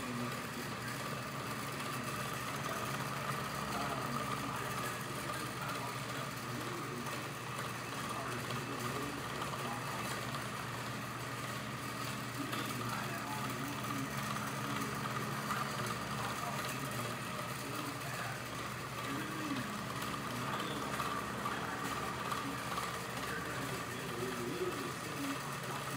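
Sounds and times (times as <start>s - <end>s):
ceiling fan motor hum: 0.0s - 25.9s
high fan whine: 0.0s - 25.9s.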